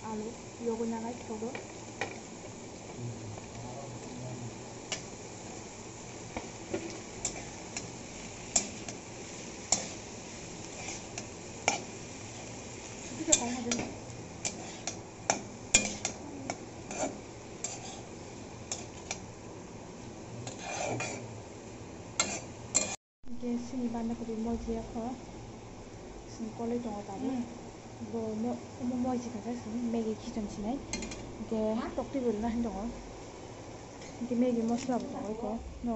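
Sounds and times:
food frying hiss: 0.0 - 35.9
metal spatula scraping wok: 6.6 - 19.2, 20.4 - 21.3, 22.2 - 23.0.

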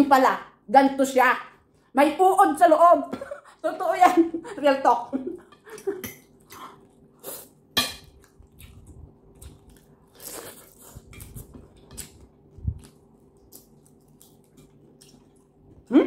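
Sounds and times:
chewing food: 8.1 - 15.9.

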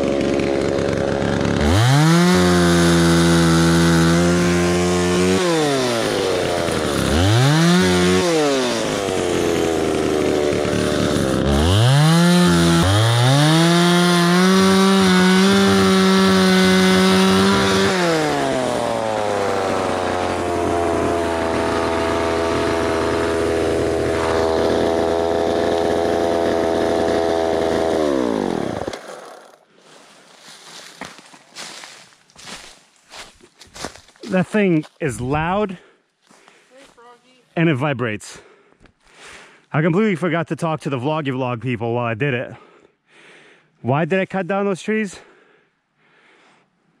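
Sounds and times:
chainsaw revving and idling: 0.0 - 35.4.

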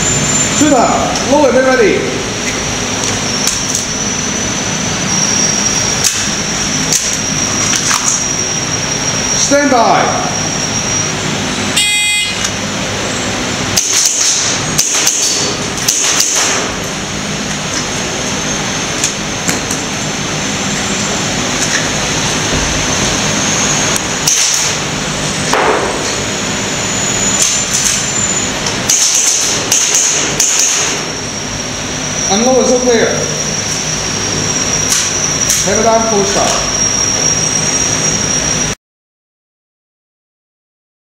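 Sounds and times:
shot timer beep: 11.8 - 12.5.

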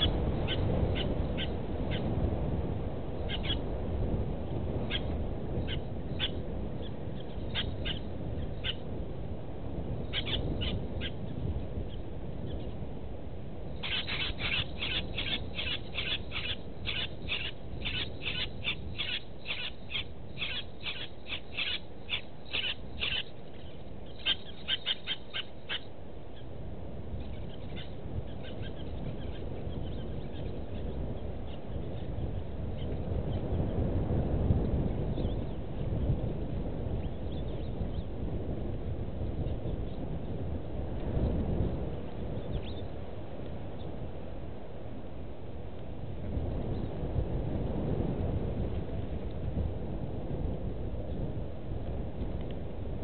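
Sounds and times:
low outdoor hum: 0.0 - 53.0
bird calling in high notes: 13.8 - 23.3, 24.1 - 25.9.

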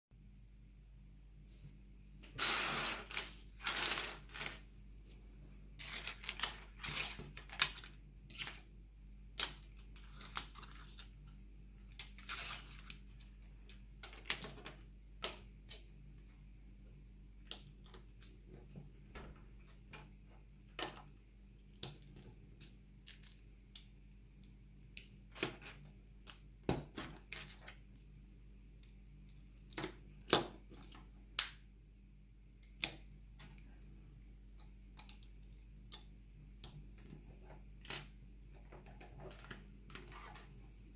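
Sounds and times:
low steady hum: 0.1 - 40.9
plastic bricks clicking: 5.8 - 8.6, 9.3 - 11.2.

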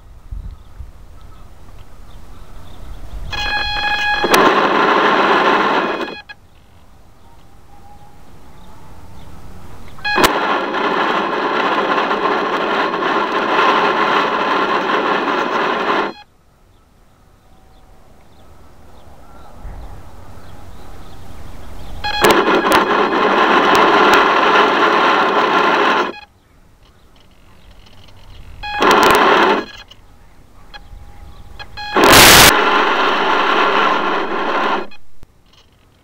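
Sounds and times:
faint hum: 0.0 - 35.6
small electric motor whining: 31.6 - 35.0.

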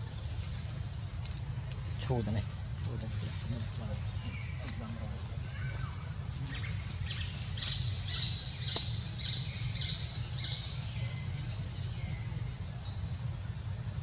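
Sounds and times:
steady low rumble: 0.0 - 14.0
bird chirping: 3.6 - 13.2.

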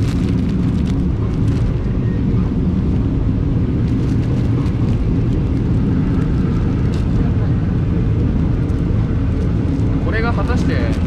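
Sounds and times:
plastic bag crinkling: 0.0 - 1.8
passenger train rumbling: 0.0 - 11.0.

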